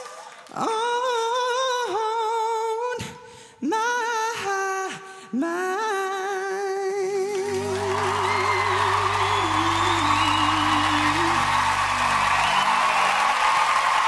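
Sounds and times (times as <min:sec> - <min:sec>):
man singing high notes: 0:00.7 - 0:12.8
low backing chords: 0:07.5 - 0:13.4.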